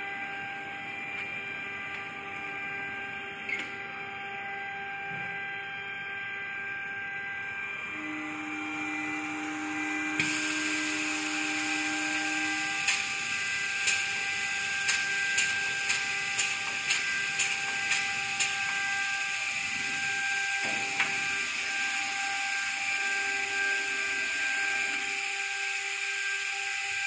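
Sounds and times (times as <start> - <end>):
robot mechanical whine: 7.8 - 27.0
sharp mechanical clicks: 14.8 - 18.6.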